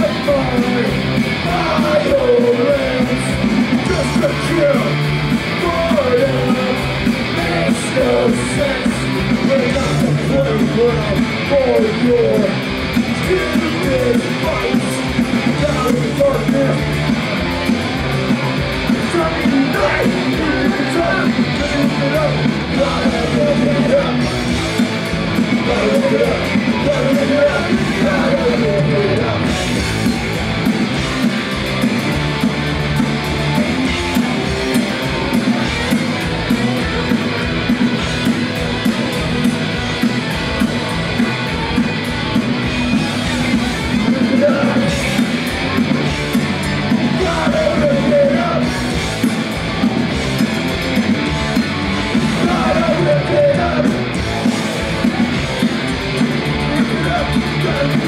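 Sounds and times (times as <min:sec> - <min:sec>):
person singing: 0:00.0 - 0:17.0, 0:18.4 - 0:24.4, 0:25.4 - 0:29.9, 0:38.3 - 0:49.0, 0:52.1 - 0:58.0
bass guitar: 0:00.0 - 0:58.0
distorted electric guitars: 0:00.0 - 0:58.0
driving drums: 0:00.0 - 0:58.0.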